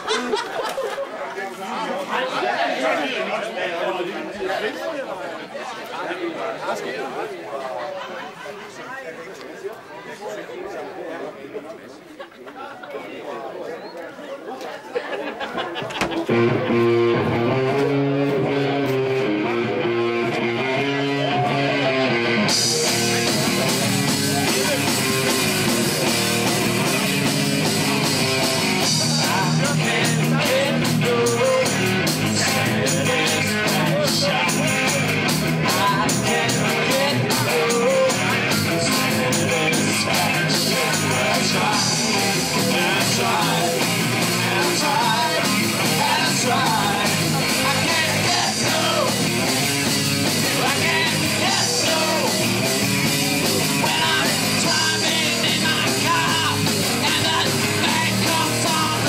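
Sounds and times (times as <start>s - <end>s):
rock and roll music: 16.1s - 59.0s.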